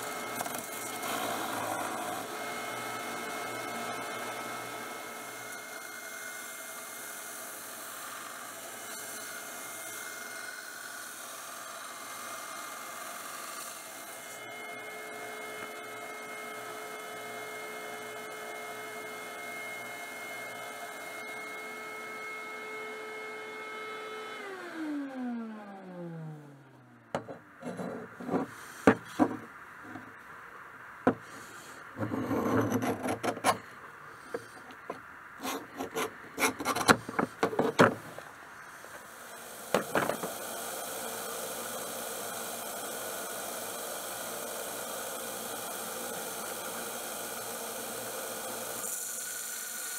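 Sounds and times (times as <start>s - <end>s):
tools knocking on wooden bench: 27.1s - 30.1s
steady hiss: 28.2s - 32.4s, 33.6s - 41.6s.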